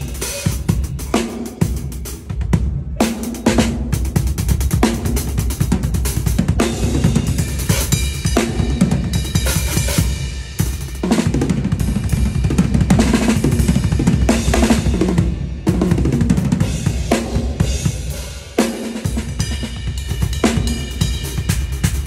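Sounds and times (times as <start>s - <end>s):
drum kit playing: 0.0s - 22.0s.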